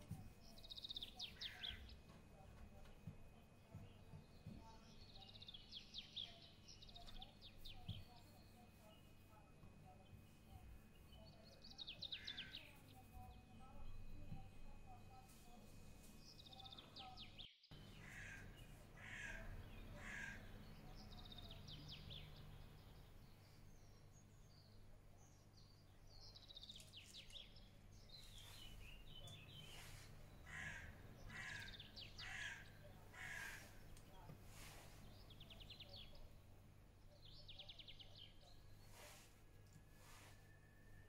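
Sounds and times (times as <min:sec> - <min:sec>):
faint birds calling: 0:00.0 - 0:41.0
low steady hum: 0:00.0 - 0:41.0.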